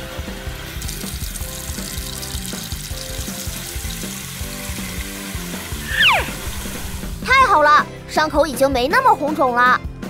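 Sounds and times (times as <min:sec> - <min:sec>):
light background music: 0:00.0 - 0:10.0
tap water running into sink: 0:00.6 - 0:05.9.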